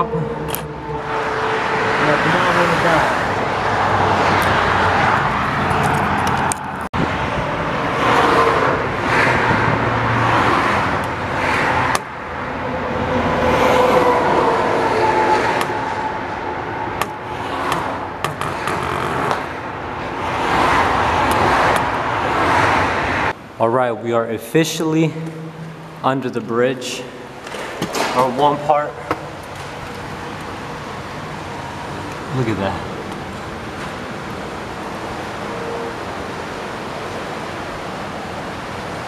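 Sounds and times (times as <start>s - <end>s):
road traffic: 0.0s - 39.0s
wind rushing over microphone: 3.0s - 18.2s.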